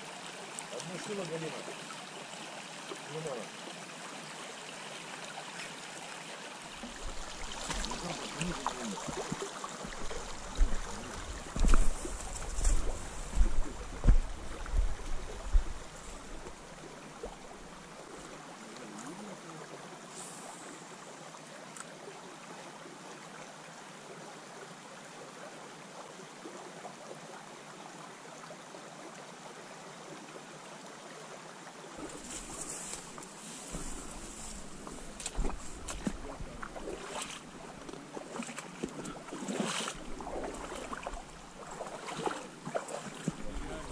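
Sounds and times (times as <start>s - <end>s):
river water over stones: 0.0s - 43.9s
low thumps: 10.5s - 16.6s.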